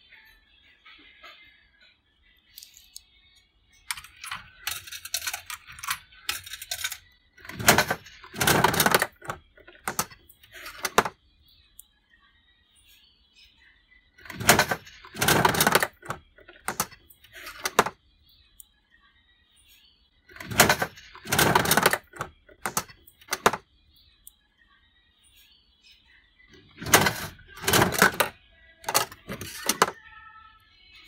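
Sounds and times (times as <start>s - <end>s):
vending machine crank clattering: 3.9s - 11.1s, 14.2s - 18.0s, 20.3s - 23.6s, 26.6s - 30.0s.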